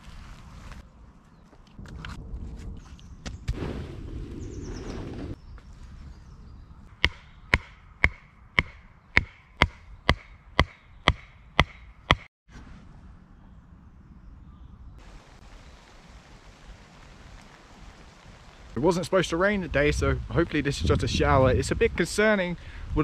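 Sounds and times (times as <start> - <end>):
mallet striking tent peg: 7.0 - 12.3
rain on tent canvas: 15.0 - 19.2.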